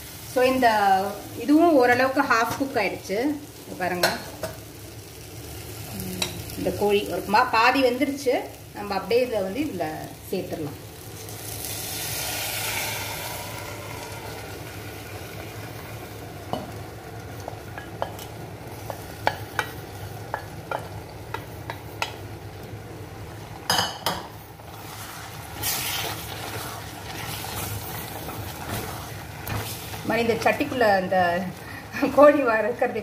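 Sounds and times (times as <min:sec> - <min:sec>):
food sizzling: 0:00.0 - 0:33.0
liquid poured into pot: 0:11.6 - 0:14.7.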